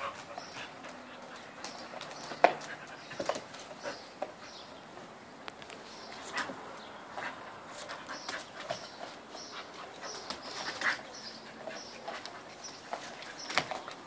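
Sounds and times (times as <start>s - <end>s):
dogs chirping: 0.0s - 4.8s.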